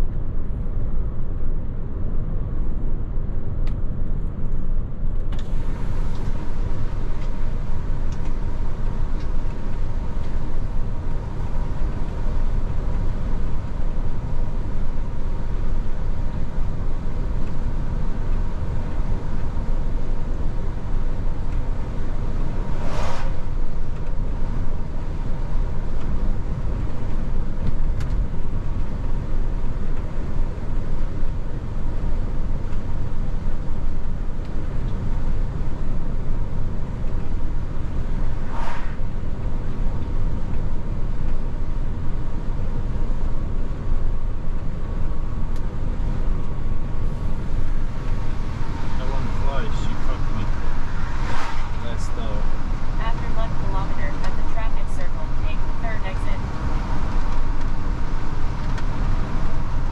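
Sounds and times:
road noise: 0:00.0 - 0:59.9
truck engine rumble: 0:00.0 - 0:59.9
short hiss: 0:22.8 - 0:23.5.

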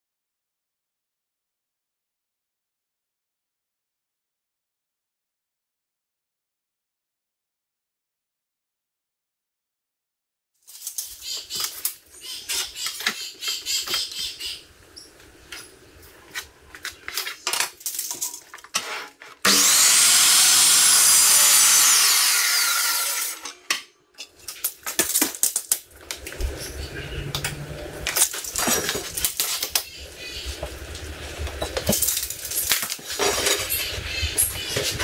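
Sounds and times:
mitre saw cutting: 0:18.8 - 0:23.6.

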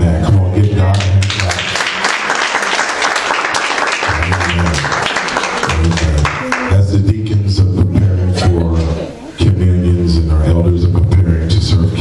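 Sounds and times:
congregation clapping: 0:00.8 - 0:07.0.

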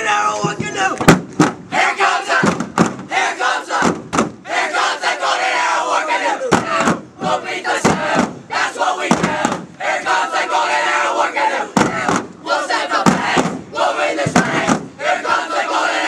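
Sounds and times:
boys shouting and chanting: 0:00.0 - 0:16.0
sharp knocks: 0:00.4 - 0:01.7, 0:02.4 - 0:03.1, 0:03.8 - 0:04.4, 0:06.5 - 0:08.4, 0:09.1 - 0:09.7, 0:11.8 - 0:12.4, 0:13.0 - 0:14.9.

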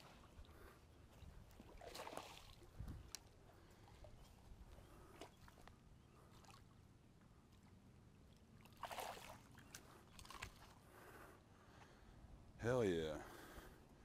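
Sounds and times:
wind rumble on microphone: 0:02.6 - 0:03.2.

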